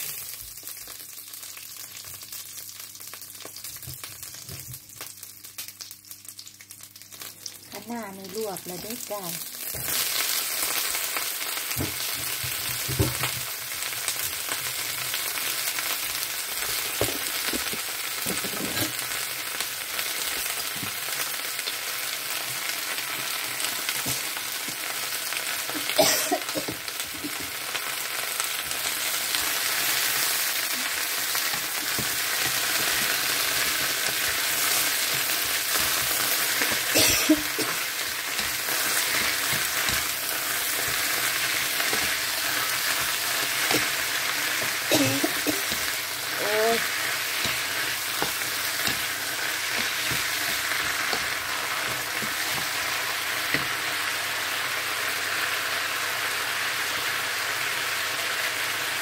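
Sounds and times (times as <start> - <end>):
greens sizzling in wok: 0.0 - 59.0.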